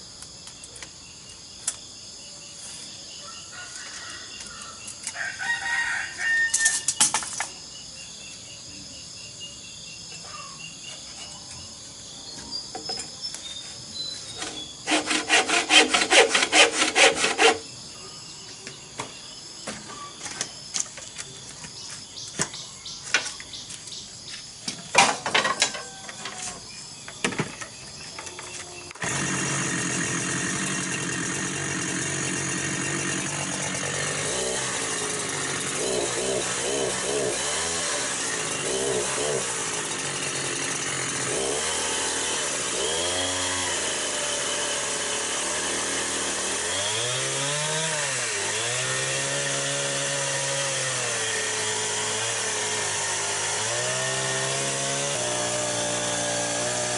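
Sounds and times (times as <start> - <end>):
crickets chirring: 0.0 - 15.6, 17.2 - 29.0
scraping strokes on bamboo: 13.5 - 17.7
chainsaw running: 14.3 - 17.7, 28.5 - 56.9.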